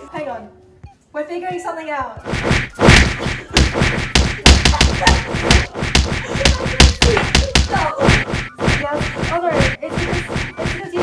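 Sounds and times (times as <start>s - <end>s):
loud thumps and knocks: 2.2s - 11.0s.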